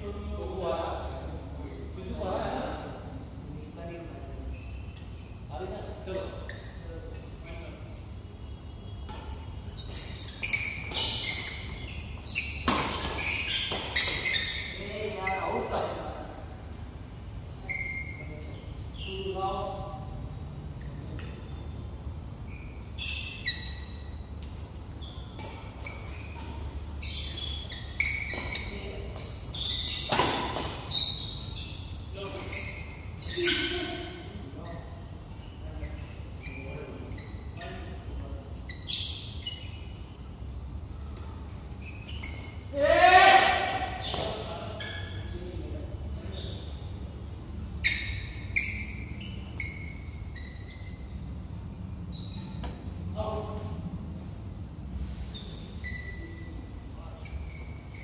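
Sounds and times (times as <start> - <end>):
low hum of hall: 0.0 - 58.0
sneakers squeaking on court floor: 1.0 - 2.2, 4.4 - 16.3, 17.6 - 20.1, 20.7 - 53.8, 55.2 - 58.0
racket hitting shuttlecock: 12.5 - 14.2, 29.9 - 30.9.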